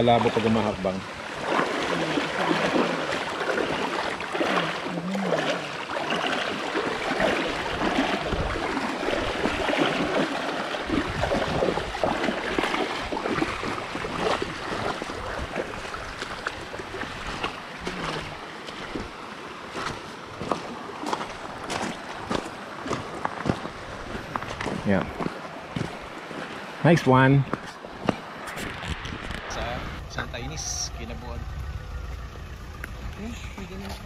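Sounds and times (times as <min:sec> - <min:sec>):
feet splashing through water: 0:00.0 - 0:26.8
stream rushing: 0:00.0 - 0:34.0.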